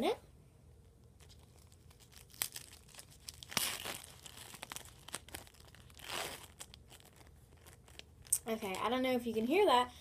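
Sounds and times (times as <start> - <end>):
wrapper tearing: 1.2 - 8.8
wrapper crinkling: 1.2 - 9.0.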